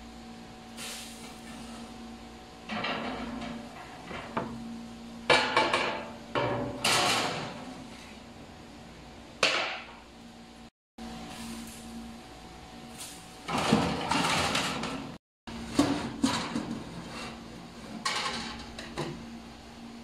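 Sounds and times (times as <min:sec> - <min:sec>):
steady low hum: 0:00.0 - 0:14.2
utensils and trays clanking: 0:13.0 - 0:17.4, 0:18.0 - 0:19.0.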